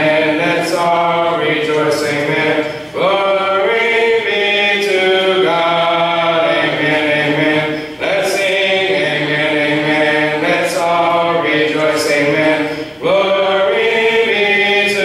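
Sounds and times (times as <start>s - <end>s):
congregation singing a hymn: 0.0s - 15.0s.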